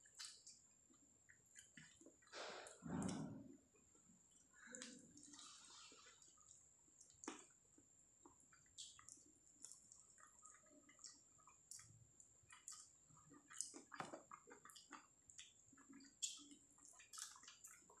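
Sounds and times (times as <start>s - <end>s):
fingers being licked: 0.0s - 0.6s, 8.6s - 17.9s
man chewing: 0.0s - 0.6s, 4.3s - 7.6s, 8.2s - 18.0s.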